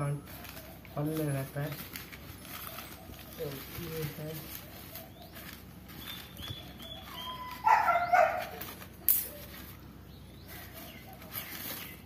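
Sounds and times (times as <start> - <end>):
dog barking: 7.6 - 8.6.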